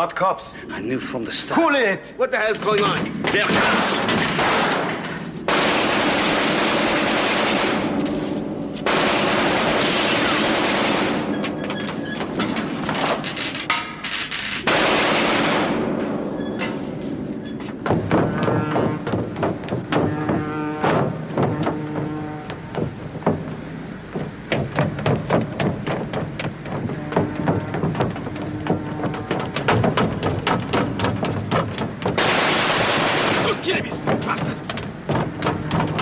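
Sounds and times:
automatic gunfire bursts: 5.5 - 8.0, 8.9 - 11.3, 14.7 - 15.9, 32.2 - 33.6.

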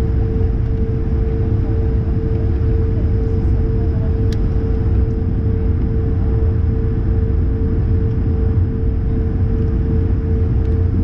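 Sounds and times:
aircraft cabin rumble: 0.0 - 11.0
mid-pitched hum: 0.0 - 11.0.

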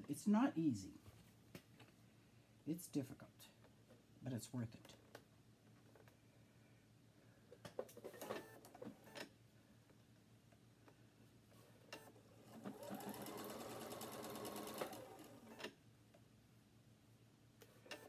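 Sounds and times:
sewing machine stitching: 8.0 - 9.2, 12.0 - 15.8
sewing machine clicks: 11.9 - 15.8.

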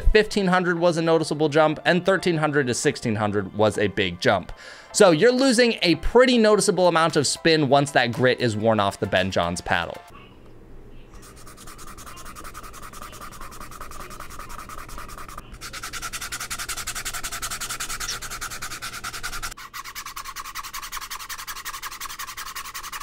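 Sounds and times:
fingertips rubbing paddle face: 11.1 - 23.0.

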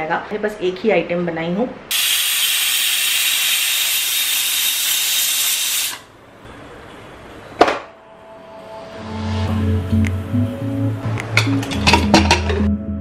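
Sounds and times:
pressure cooker hissing steam: 1.9 - 6.1.

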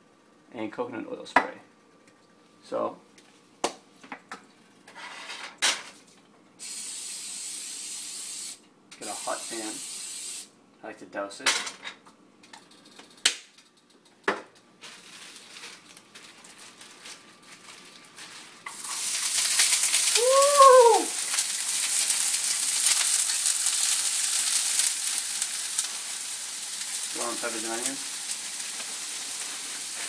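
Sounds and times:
vegetables sizzling in a frying pan: 6.6 - 10.4, 17.0 - 30.0.

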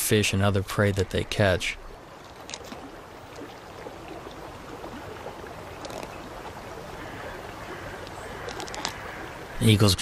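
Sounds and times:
river flowing over gravel: 0.0 - 10.0.

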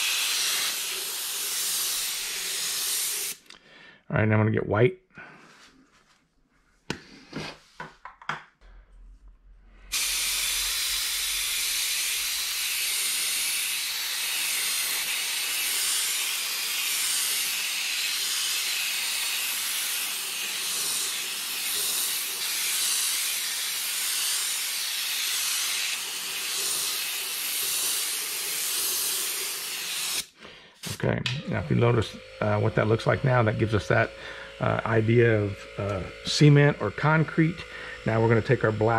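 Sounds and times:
airbrush spraying paint: 0.0 - 3.5, 9.9 - 31.0, 32.4 - 38.9.

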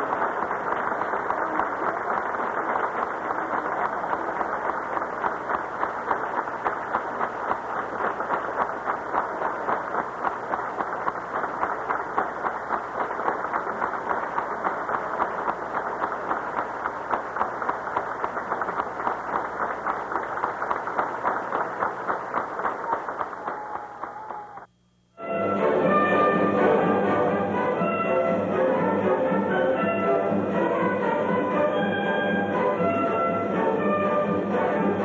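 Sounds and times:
audience clapping in rhythm: 0.0 - 24.7
orchestra playing: 25.2 - 35.0.

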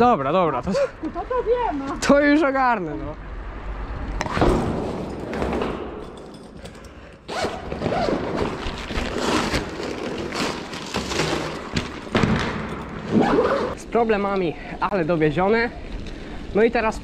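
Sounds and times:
zipper being pulled: 7.3 - 11.8, 13.0 - 13.8.

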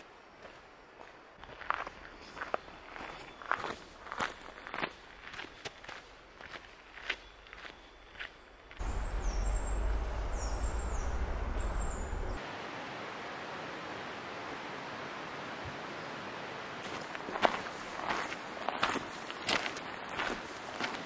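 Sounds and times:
birds chirping: 8.8 - 12.4.

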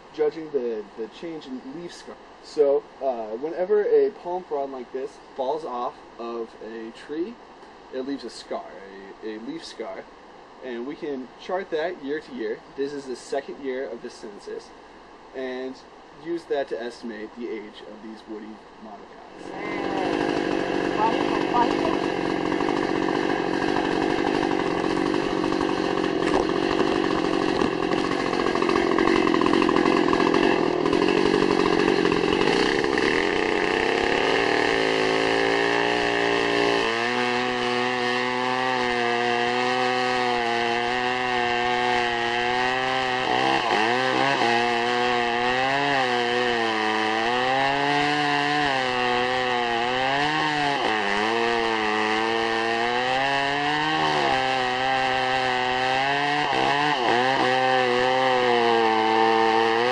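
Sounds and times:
chainsaw cutting wood: 19.4 - 59.9.

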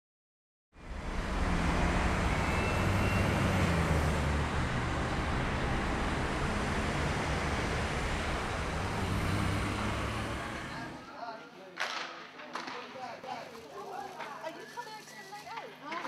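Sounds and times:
road traffic passing: 0.8 - 11.2.

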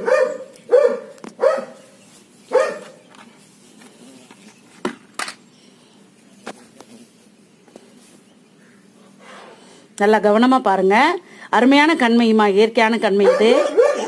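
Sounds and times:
dog barking: 0.0 - 1.9, 2.5 - 3.0, 13.2 - 14.0.

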